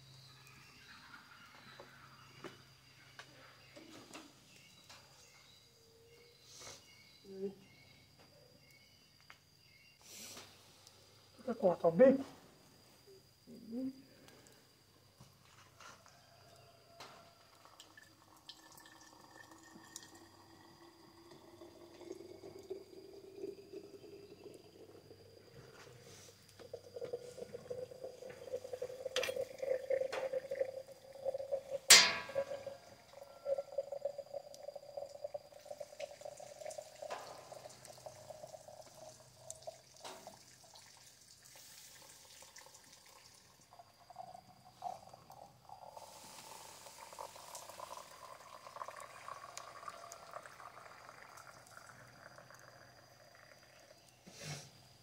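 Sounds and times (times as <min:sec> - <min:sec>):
water pouring into a container: 0:17.5 - 0:54.1.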